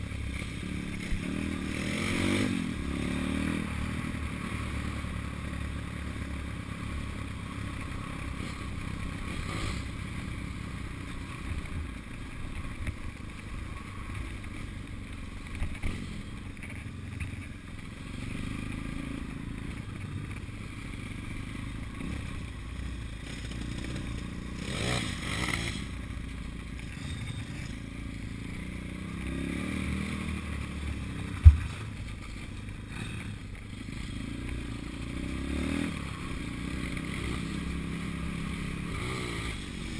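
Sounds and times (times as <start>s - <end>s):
pit bike engine running: 0.0s - 39.9s
bike clattering over bumps: 31.3s - 32.1s
sharp knock: 31.4s - 31.8s.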